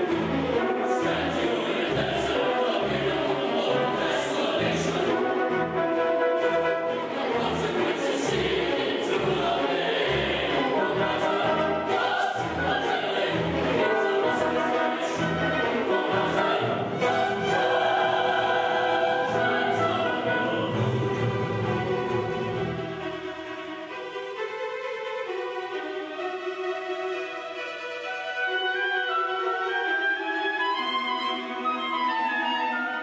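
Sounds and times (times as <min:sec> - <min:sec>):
mixed choir singing: 0:00.0 - 0:22.9
string orchestra: 0:00.0 - 0:33.0.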